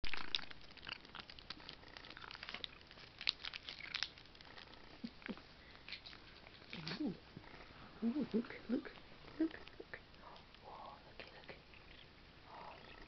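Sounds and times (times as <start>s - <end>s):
plastic wrapper crinkling: 0.0s - 7.0s
cat licking and chewing: 0.1s - 7.7s.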